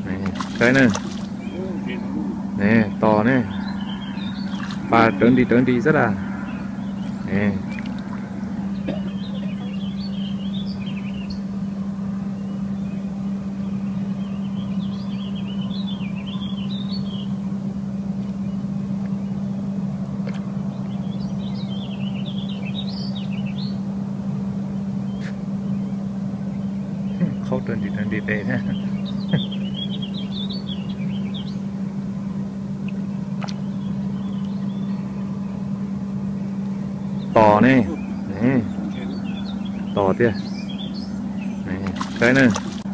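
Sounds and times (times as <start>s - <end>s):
faint bird chirps: 0.0s - 11.6s, 24.7s - 31.7s
small birds chirping: 0.0s - 17.6s, 20.2s - 24.0s, 24.6s - 42.9s
engine humming: 0.0s - 42.9s
low motor-like drone: 0.0s - 42.9s.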